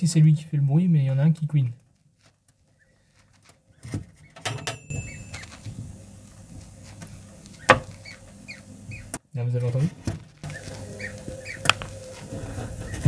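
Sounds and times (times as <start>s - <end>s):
low steady hum: 4.4s - 13.0s
duckling peep: 7.5s - 9.2s, 10.4s - 13.0s.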